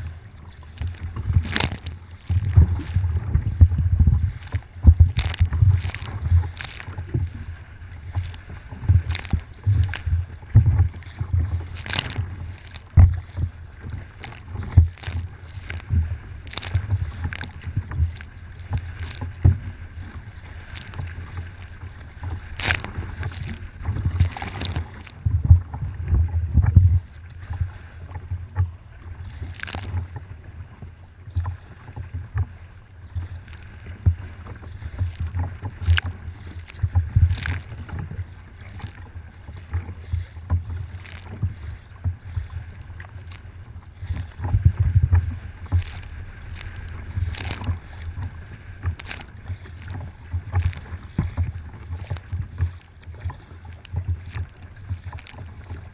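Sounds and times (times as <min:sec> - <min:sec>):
low rumble of wind and water: 0:00.0 - 0:55.9
water splashing against kayak hull: 0:00.0 - 0:55.9.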